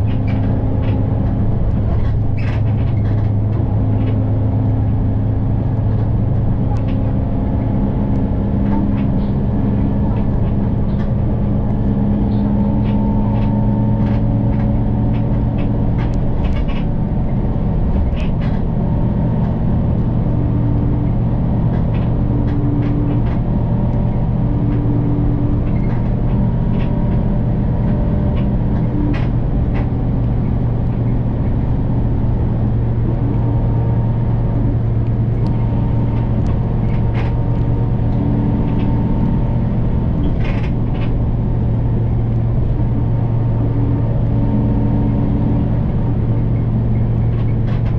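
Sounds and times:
bus engine drone: 0.0 - 47.9
road noise: 0.0 - 47.9
light clicks and rattles: 8.4 - 20.3, 21.0 - 32.2, 34.3 - 43.4, 46.3 - 47.9.

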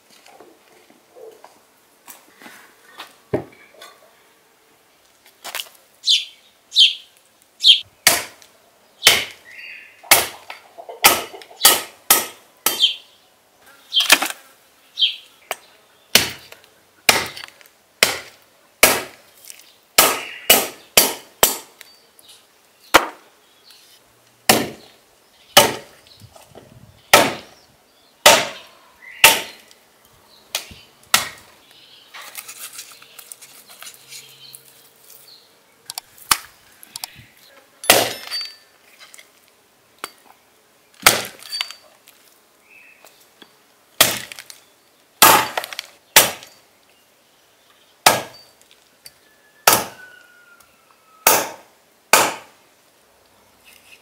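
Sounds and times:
hatchet chopping ribs on wood: 8.0 - 8.4, 9.0 - 9.4, 10.1 - 10.4, 11.0 - 12.9, 16.2 - 16.5, 17.1 - 19.2, 20.0 - 21.7, 22.9 - 23.2, 24.5 - 24.8, 25.6 - 25.9, 27.1 - 27.5, 28.2 - 28.6, 29.2 - 29.6, 30.6 - 31.4, 37.9 - 38.3, 41.0 - 41.4, 44.0 - 44.4, 45.2 - 46.5, 48.0 - 48.4, 49.6 - 50.0, 51.2 - 52.5.

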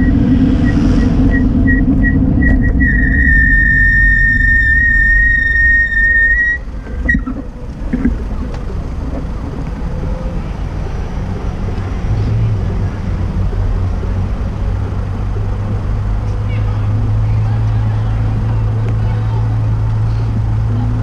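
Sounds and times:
high squeal: 0.0 - 7.5
vehicle engines droning: 0.0 - 21.0.

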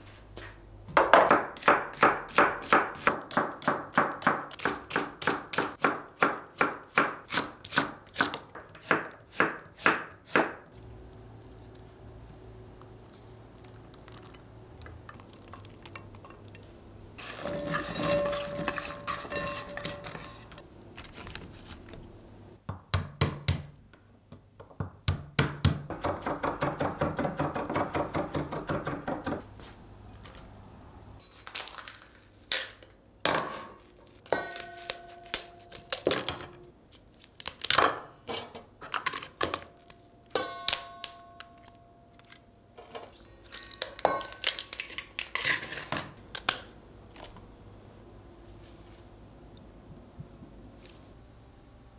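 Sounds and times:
utensils clinking against metal pot: 15.6 - 20.6, 33.3 - 36.6, 40.3 - 46.7.

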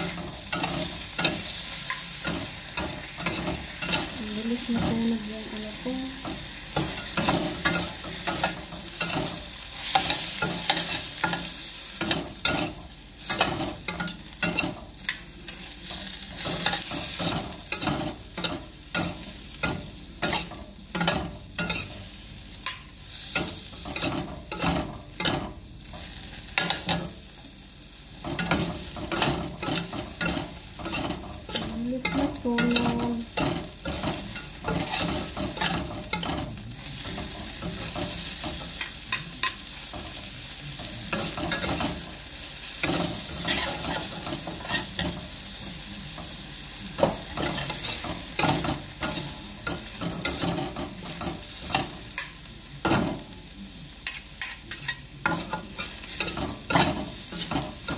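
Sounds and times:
meat and onions sizzling in a wok: 0.0 - 57.9
metal spatula scraping and clanking: 28.2 - 40.0, 54.0 - 57.9.

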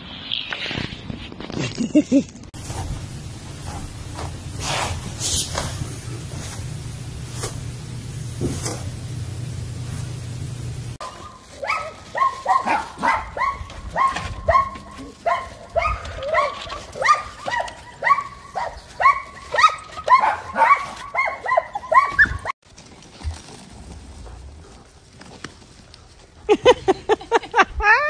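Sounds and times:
dog barking: 11.0 - 22.5.

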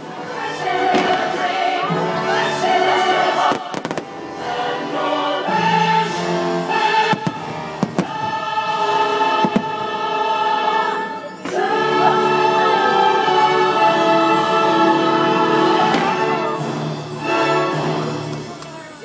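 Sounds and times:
choir singing with music: 0.0 - 19.0
fireworks bangs: 0.8 - 1.6, 3.4 - 4.2, 7.0 - 8.4, 9.4 - 10.0.

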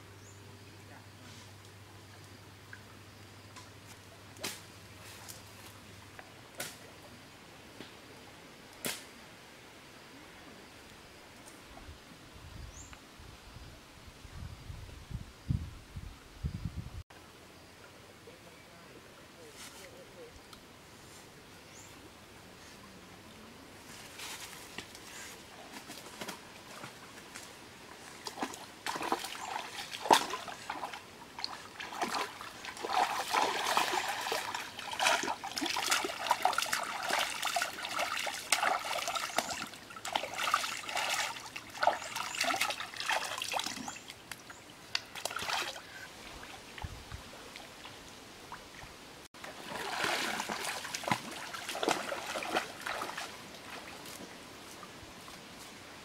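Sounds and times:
water splashing: 27.9 - 54.2.

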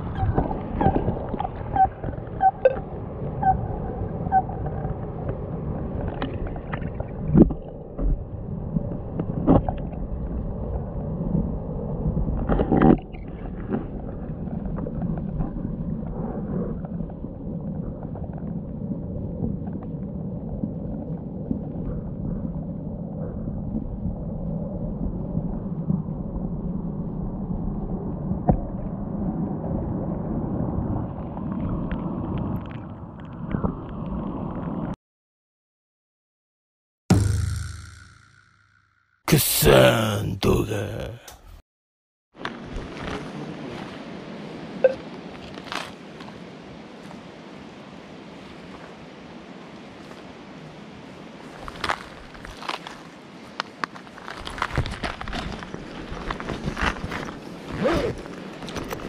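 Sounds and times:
underwater stream rumble: 0.0 - 35.0
sharp knock: 37.1 - 39.0
muffled stream water rushing: 42.5 - 52.3.

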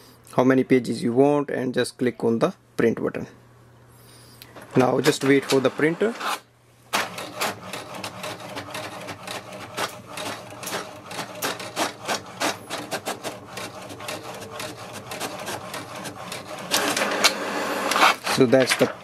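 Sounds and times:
printer carriage clicks and rasps: 4.6 - 5.8, 7.0 - 19.0
printer motor hum: 4.6 - 6.4, 7.0 - 19.0.

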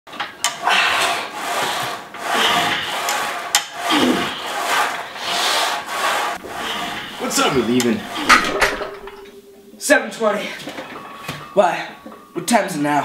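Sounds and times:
heavy strained breathing: 0.5 - 9.4.

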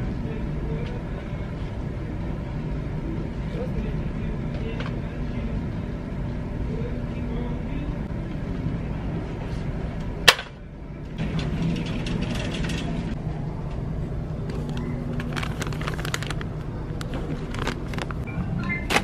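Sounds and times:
store background hum: 0.0 - 19.0
plastic packets crinkling: 14.5 - 18.3.

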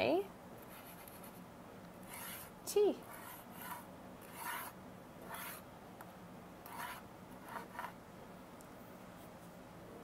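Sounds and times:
fingertip scraping through flour: 2.1 - 2.5, 3.1 - 5.6.

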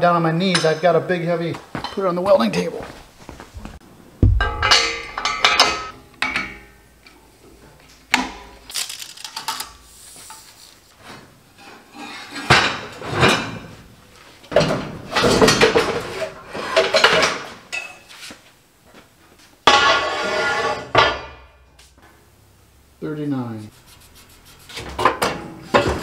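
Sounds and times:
metal tools clanking and rattling: 4.4 - 6.6.

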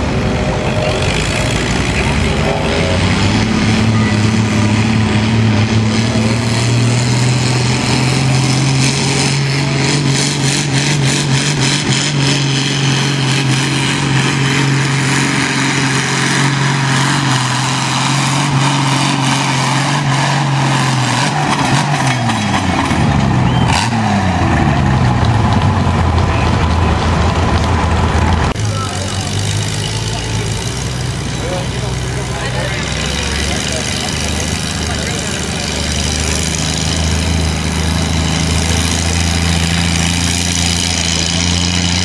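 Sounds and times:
tractor engine running hard: 0.0 - 42.0.

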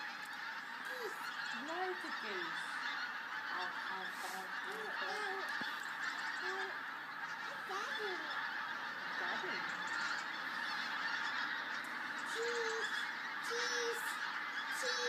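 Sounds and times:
flock of geese calling: 0.0 - 15.0.

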